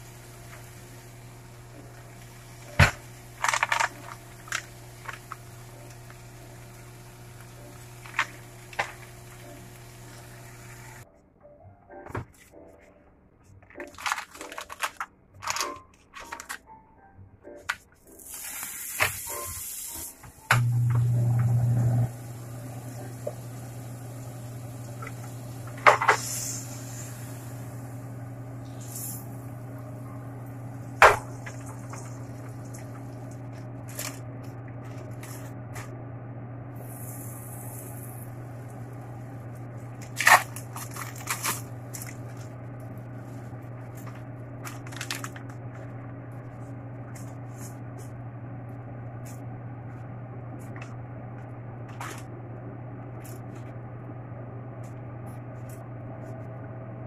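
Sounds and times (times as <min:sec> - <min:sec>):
steady low hum: 0:20.4 - 0:57.0.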